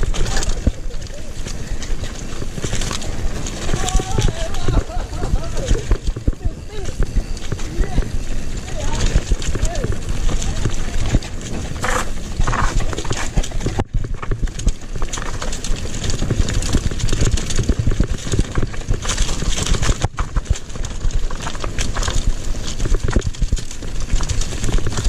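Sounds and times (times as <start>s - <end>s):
bike clattering over stones: 0.0s - 25.0s
wind rumble on microphone: 0.0s - 25.0s.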